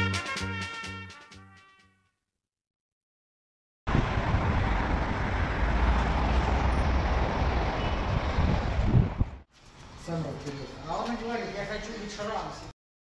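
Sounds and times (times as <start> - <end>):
road traffic noise: 3.9 - 11.3.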